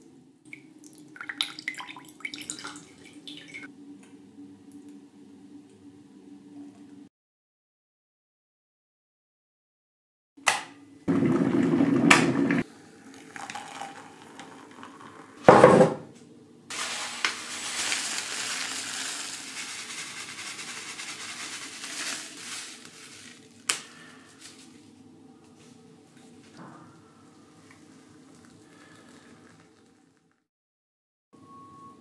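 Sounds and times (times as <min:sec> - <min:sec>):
drink poured into a mug: 0:12.6 - 0:15.4, 0:27.6 - 0:30.4
oats poured into a bowl: 0:16.7 - 0:24.8.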